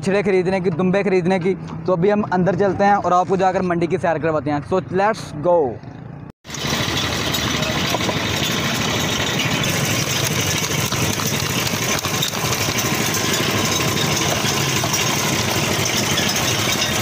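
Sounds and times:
sugarcane juice machine running: 0:06.4 - 0:17.0.

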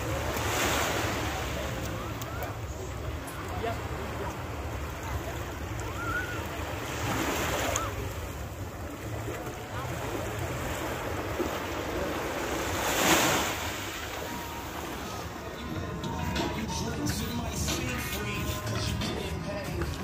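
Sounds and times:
small waves breaking on shore: 0:00.0 - 0:15.7.

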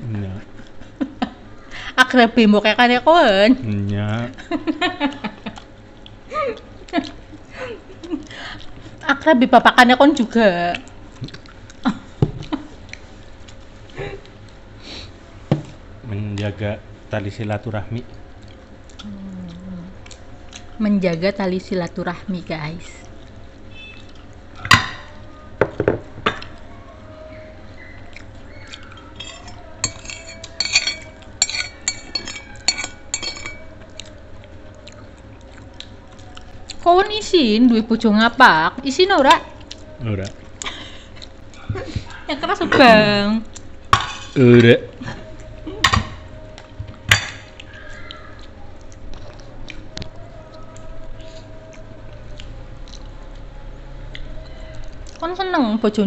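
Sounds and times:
faint steady hum: 0:00.0 - 0:56.0
cutlery clinking on ceramic plates: 0:29.2 - 0:33.7, 0:45.8 - 0:46.2.

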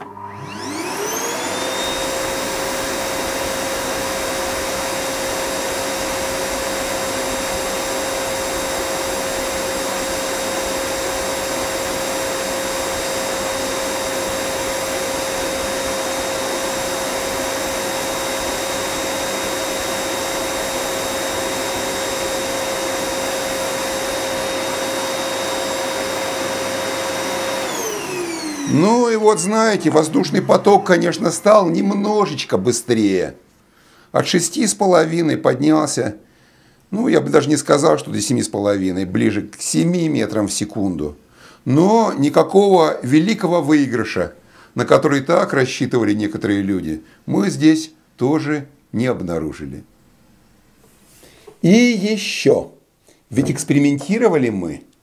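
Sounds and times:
air blower motor whine: 0:00.0 - 0:32.6.

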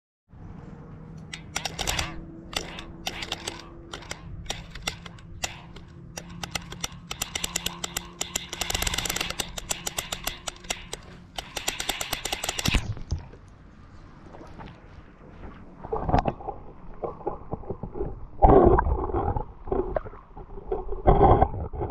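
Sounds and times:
rapid clicking and rattling: 0:01.2 - 0:12.9.

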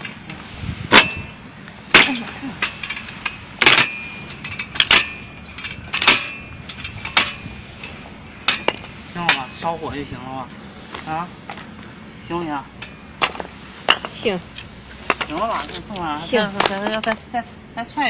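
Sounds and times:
log splitter metallic clanks: 0:00.0 - 0:09.9, 0:12.7 - 0:17.2.

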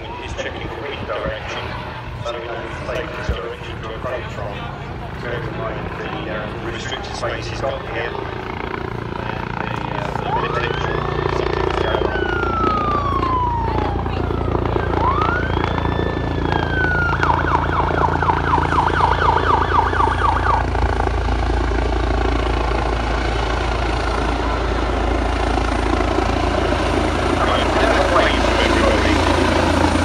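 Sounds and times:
helicopter rotor drone: 0:00.0 - 0:30.0
siren wailing and yelping: 0:10.0 - 0:21.1.

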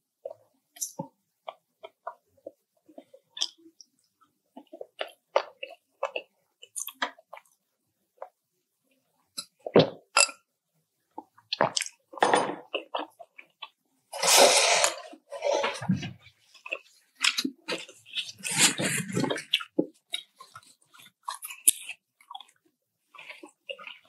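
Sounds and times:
wet chewing: 0:16.5 - 0:24.0.

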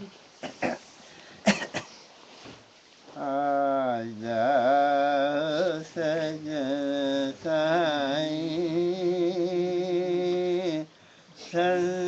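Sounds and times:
man singing devotional song: 0:03.1 - 0:12.0.

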